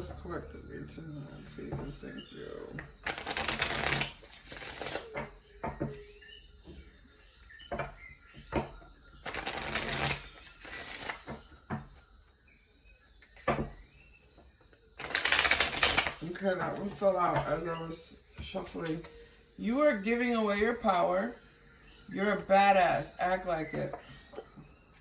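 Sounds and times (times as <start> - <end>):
cards being shuffled: 3.0 - 5.2, 9.2 - 11.4, 15.0 - 16.9
cards tapping and clicking: 3.0 - 5.9, 9.2 - 11.8, 15.0 - 16.3.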